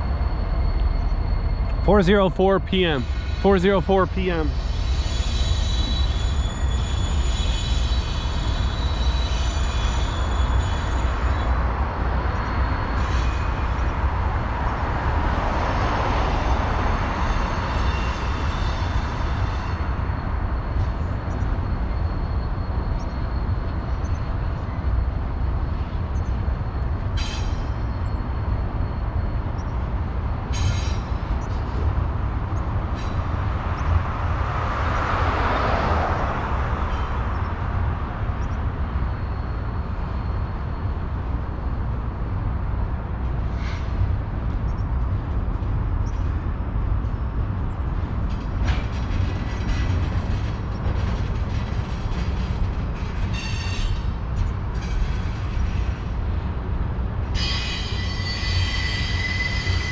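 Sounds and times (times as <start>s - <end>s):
train wheels rumbling on rail: 0.0s - 59.9s
high wheel squeal: 4.4s - 13.9s, 52.2s - 56.0s, 57.3s - 59.9s.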